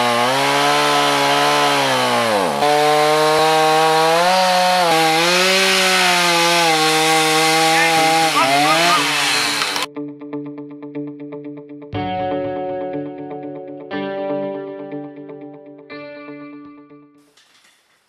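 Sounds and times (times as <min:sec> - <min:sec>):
chainsaw cutting tree: 0:00.0 - 0:09.9.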